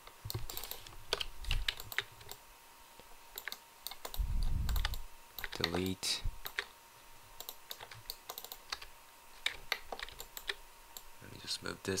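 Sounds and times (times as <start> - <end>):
computer mouse clicking: 0.0 - 2.4, 3.3 - 6.7, 7.4 - 11.1
keyboard keystrokes: 3.4 - 6.7, 7.4 - 10.6.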